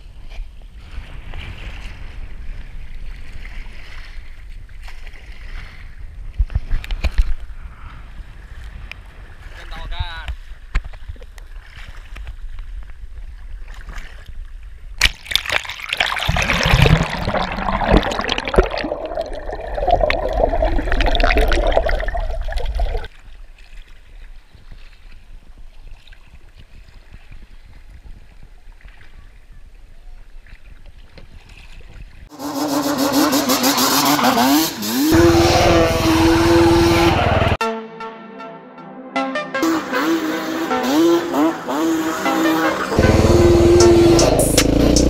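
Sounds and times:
wind on microphone: 0:00.0 - 0:15.0, 0:24.1 - 0:32.2
water splashing against kayak hull: 0:00.1 - 0:07.5, 0:10.3 - 0:32.3
quad bike engine revving: 0:32.3 - 0:37.6, 0:39.6 - 0:45.0.

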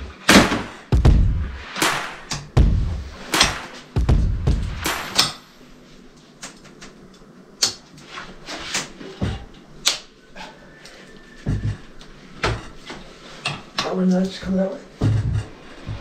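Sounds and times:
heavy thumps: 0:00.0 - 0:05.2, 0:15.0 - 0:16.0.

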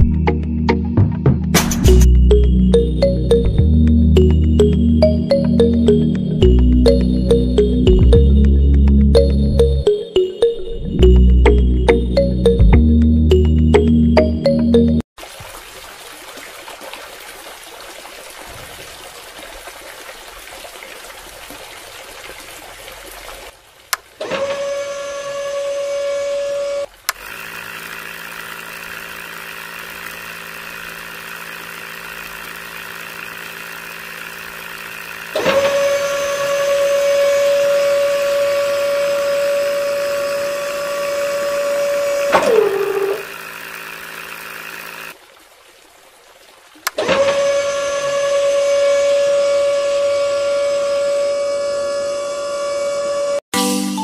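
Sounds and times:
low motor hum: 0:00.0 - 0:14.9, 0:24.4 - 0:45.2, 0:46.9 - 0:53.4
high motor whine: 0:24.6 - 0:45.2, 0:47.1 - 0:53.4.

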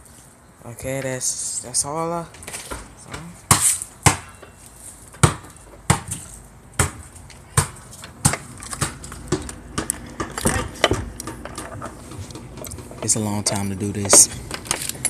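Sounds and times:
sharp knocks: 0:03.5 - 0:04.5, 0:05.1 - 0:06.2, 0:07.6 - 0:14.7.

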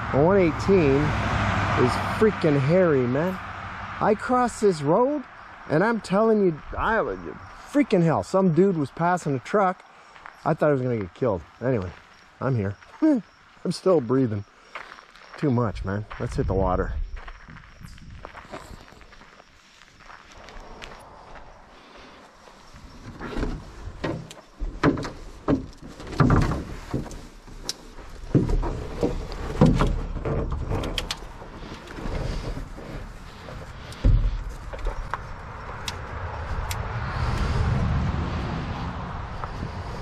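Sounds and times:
vehicle passing on highway: 0:00.0 - 0:10.7, 0:20.3 - 0:23.0, 0:28.6 - 0:40.0
canoe gear knocks and scrapes: 0:23.0 - 0:35.3.

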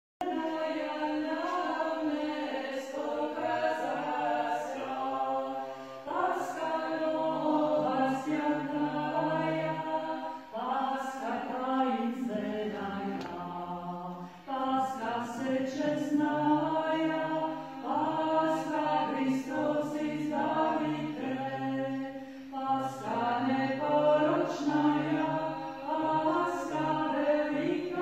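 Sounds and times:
group singing unaccompanied chant: 0:00.2 - 0:28.0.

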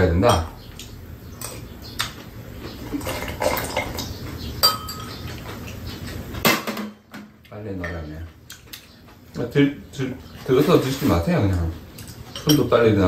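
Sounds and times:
utensils clinking on ceramic bowls: 0:02.9 - 0:05.8, 0:10.5 - 0:13.0.

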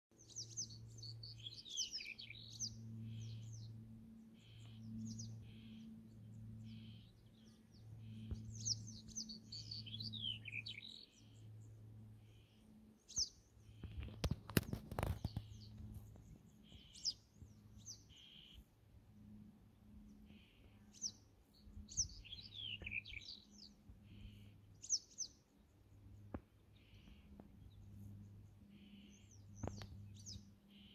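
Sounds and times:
bird singing scratchy notes: 0:00.1 - 0:25.4, 0:26.0 - 0:30.9.

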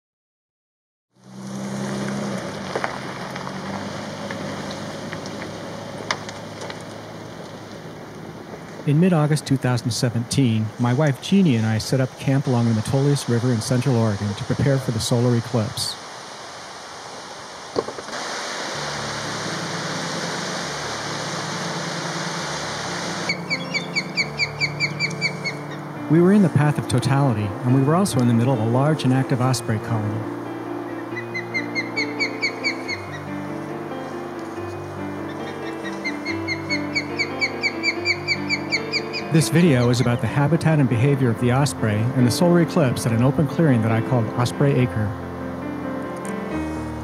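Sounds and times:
river water rushing: 0:01.2 - 0:09.8, 0:10.5 - 0:44.5, 0:45.1 - 0:47.0
low hum: 0:18.2 - 0:26.1
bird whistling chirps: 0:23.2 - 0:25.8, 0:31.0 - 0:33.2, 0:35.3 - 0:39.3.

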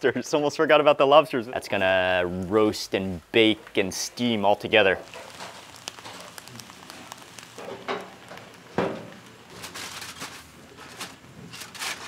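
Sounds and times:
food sizzling on a grill: 0:01.2 - 0:12.0.

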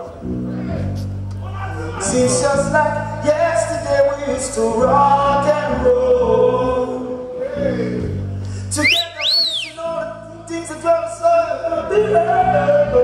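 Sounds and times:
men singing together: 0:11.6 - 0:13.0.

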